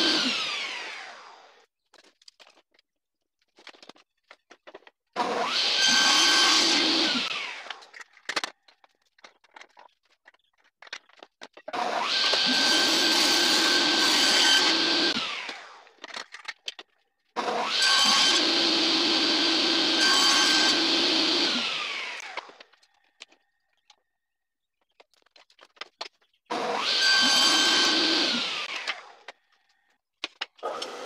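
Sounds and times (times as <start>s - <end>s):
table saw running: 0.0s - 1.5s, 5.2s - 7.8s, 11.7s - 15.8s, 17.4s - 22.5s, 26.5s - 29.1s
wood pieces knocking: 1.9s - 5.1s, 7.8s - 11.8s, 24.8s - 26.4s.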